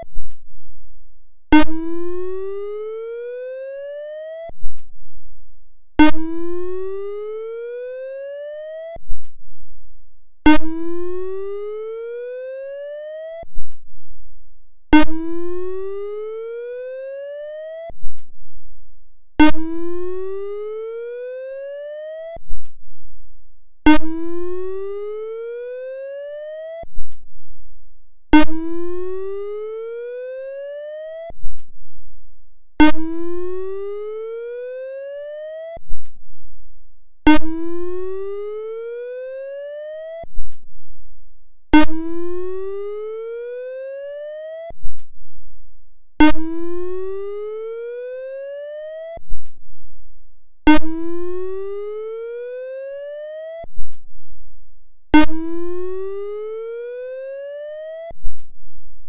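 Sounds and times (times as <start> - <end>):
sharp click: 0.2 - 0.5, 13.7 - 13.9, 27.0 - 27.2, 31.5 - 31.7, 36.0 - 36.2, 44.9 - 45.1, 49.4 - 49.6, 58.3 - 58.6
electronic siren whoop: 1.6 - 4.6, 6.0 - 9.0, 10.5 - 13.5, 15.0 - 18.0, 19.4 - 22.4, 23.9 - 26.9, 28.4 - 31.4, 32.8 - 35.8, 37.3 - 40.3, 41.8 - 44.8, 46.2 - 49.2, 50.7 - 53.7, 55.2 - 58.2.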